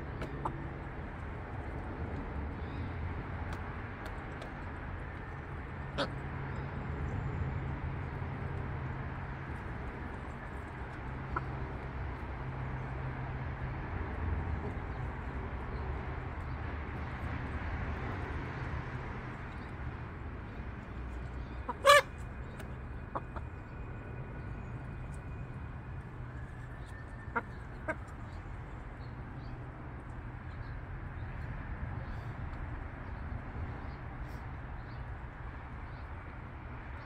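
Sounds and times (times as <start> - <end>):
hens clucking: 0.1 - 1.0, 9.9 - 11.8, 21.3 - 23.6, 27.3 - 28.4
hen squawk: 21.4 - 22.2.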